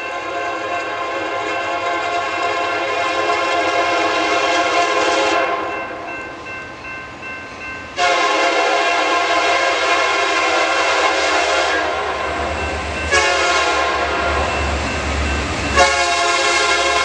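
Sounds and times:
locomotive air horn blasts: 0.2s - 5.8s, 8.0s - 14.6s, 15.7s - 17.0s.

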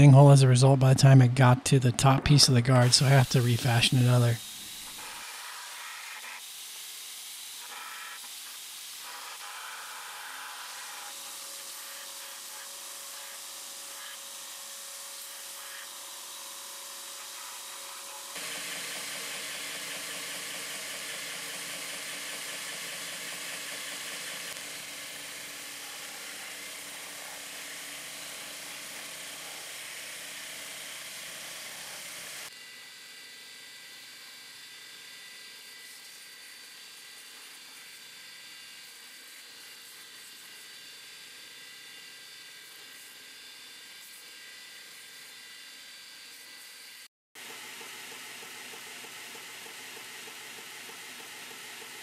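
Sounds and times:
belt grinder grinding steel: 2.8s - 32.5s.

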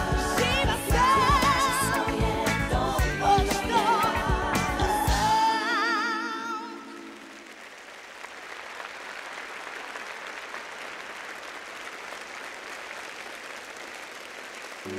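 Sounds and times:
backing music: 0.0s - 6.8s
audience applauding: 6.7s - 14.9s.

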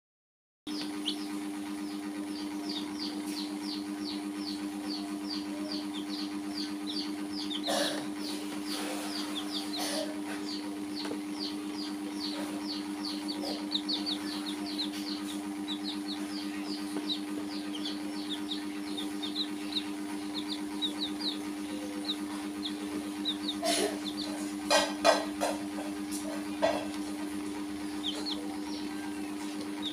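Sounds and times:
chicks peeping: 0.7s - 29.9s
steady low hum: 0.7s - 29.9s.

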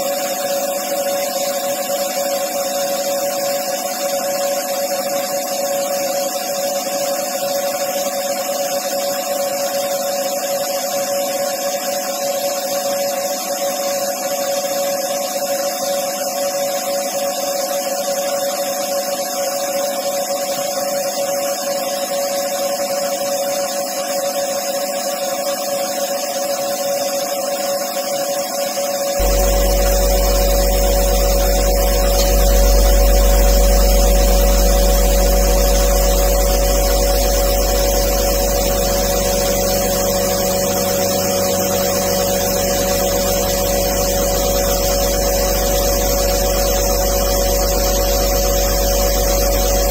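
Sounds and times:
lathe spindle whine: 27.5s - 49.9s
deep low hum: 29.2s - 49.9s
high machine tone: 29.2s - 49.9s.

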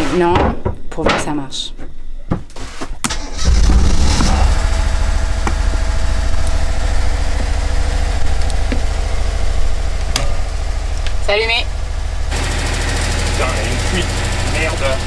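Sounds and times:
diesel generator starting and running: 3.0s - 15.0s.

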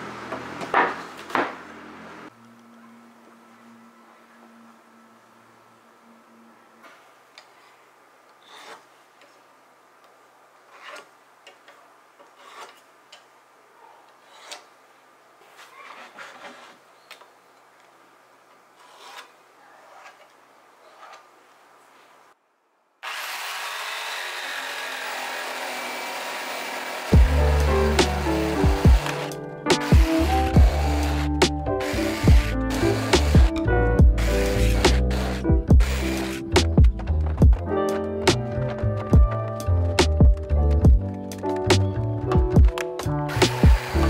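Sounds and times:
marking gauge scratching wood: 8.4s - 8.9s, 10.7s - 11.1s, 12.2s - 12.8s, 14.2s - 14.7s, 18.8s - 20.2s, 27.5s - 36.8s
jigsaw cutting boards: 23.0s - 37.6s, 42.7s - 44.0s.

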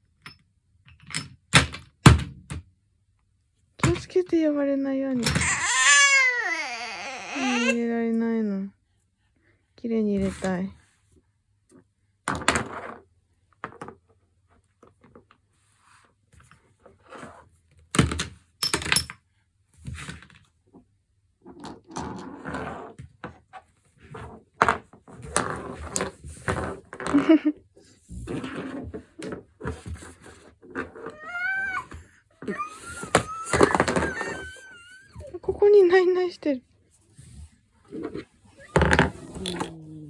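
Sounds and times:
small child babbling: 31.1s - 35.4s.

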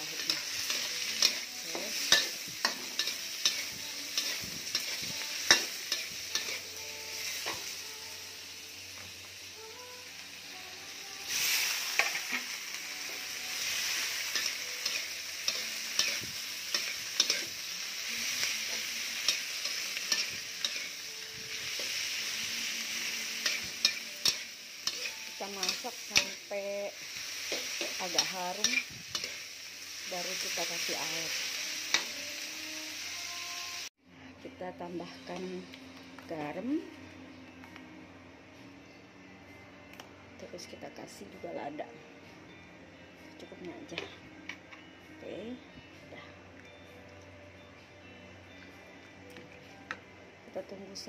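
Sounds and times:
food sizzling in a wok: 0.0s - 34.0s.

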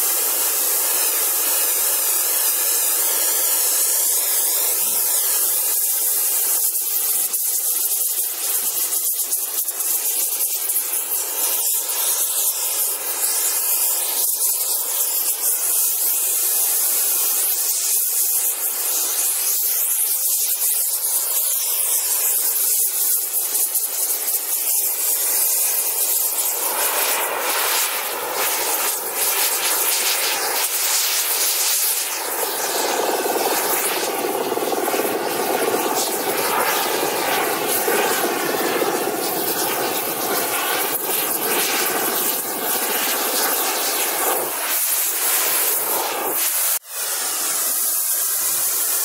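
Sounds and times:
gas torch hissing: 0.0s - 49.0s
book burning with crackles: 6.6s - 16.1s, 17.4s - 46.8s.

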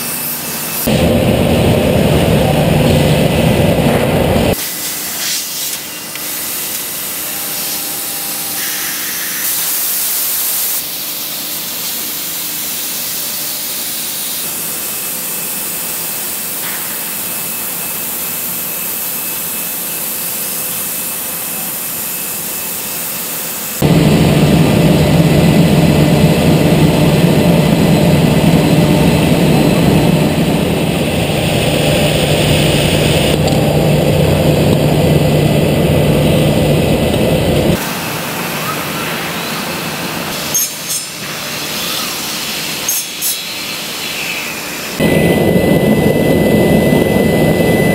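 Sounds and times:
loud machine running noise: 0.0s - 47.9s
steady low hum: 0.6s - 4.6s, 23.8s - 38.1s, 44.8s - 47.9s
machine airy hiss: 4.5s - 24.1s.

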